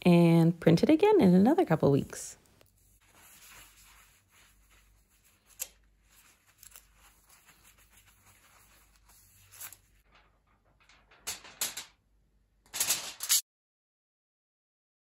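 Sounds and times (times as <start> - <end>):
cloth rubbing on foil: 2.6 - 10.2
foil crinkling: 3.3 - 10.1.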